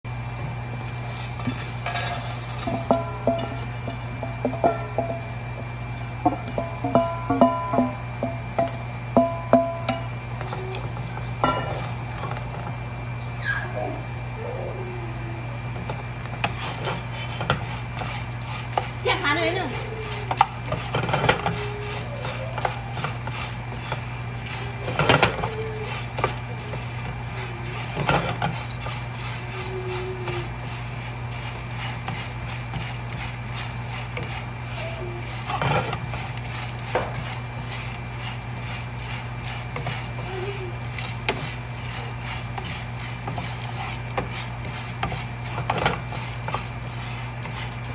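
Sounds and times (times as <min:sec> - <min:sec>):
steady low hum: 0:00.0 - 0:47.9
seeds rattling in metal pan: 0:00.8 - 0:07.4
wooden spoon scraping pan: 0:15.8 - 0:47.9.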